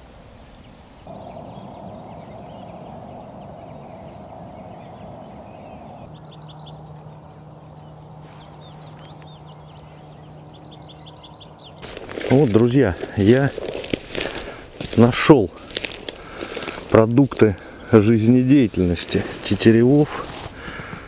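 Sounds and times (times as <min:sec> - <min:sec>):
small songbirds singing: 0:00.5 - 0:21.0
black grouse bubbling: 0:01.1 - 0:06.1
steady low hum: 0:01.1 - 0:12.3.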